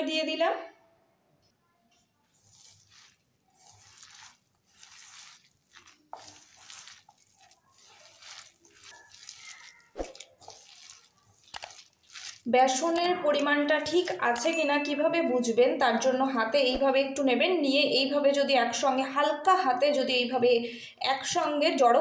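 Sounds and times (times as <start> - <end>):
hand squishing wet cabbage: 2.2 - 15.0.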